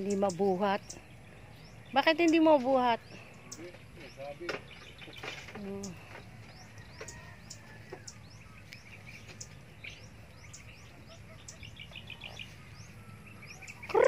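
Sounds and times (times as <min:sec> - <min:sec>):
bird trill: 0:00.0 - 0:14.0
low steady background hum: 0:00.0 - 0:14.0
small birds chirping: 0:00.0 - 0:14.0.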